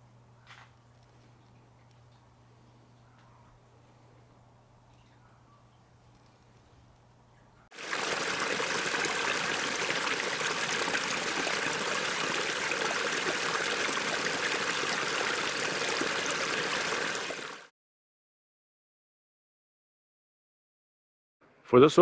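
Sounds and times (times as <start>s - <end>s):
creek water rushing: 7.7s - 17.7s.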